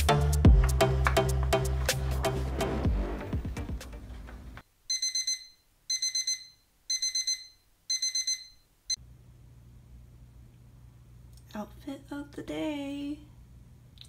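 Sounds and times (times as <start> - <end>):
music: 0.0 - 4.6
digital alarm clock beeping: 4.9 - 8.6.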